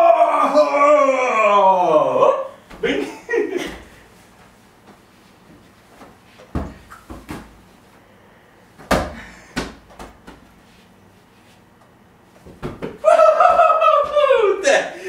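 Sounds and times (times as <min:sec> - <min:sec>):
football thumping off floor: 0:06.4 - 0:07.6, 0:08.8 - 0:10.5, 0:12.4 - 0:14.2.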